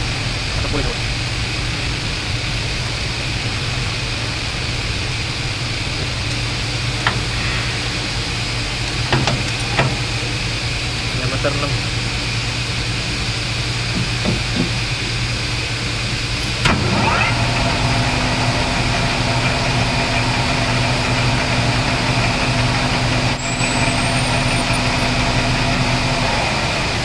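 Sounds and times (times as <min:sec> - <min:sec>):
metal lathe running: 0:00.0 - 0:27.0
steady drone: 0:00.0 - 0:27.0
drill cutting brass: 0:16.5 - 0:27.0.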